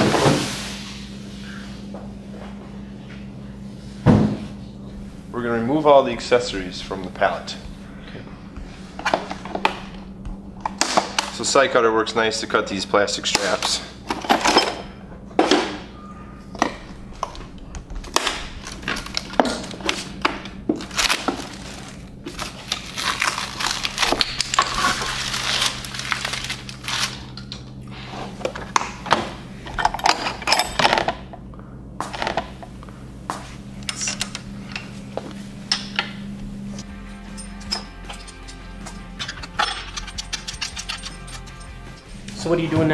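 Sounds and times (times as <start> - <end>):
steady low hum: 0.0 - 42.9
metal tools clinking: 13.4 - 15.0, 29.7 - 31.1, 35.7 - 42.5
rustling paper and plastic: 18.0 - 27.5.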